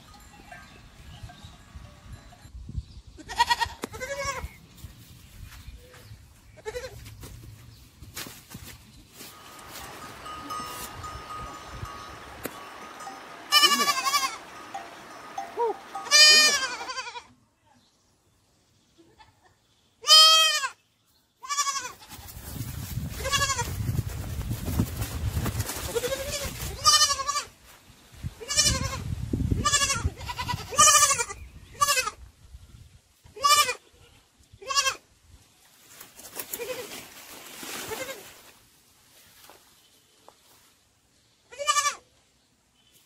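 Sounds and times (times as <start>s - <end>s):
sheep and lambs bleating: 3.2s - 4.6s, 6.6s - 7.0s, 9.3s - 17.3s, 20.0s - 20.8s, 21.4s - 22.2s, 28.4s - 29.0s, 29.6s - 32.2s, 33.4s - 35.0s, 41.5s - 42.0s.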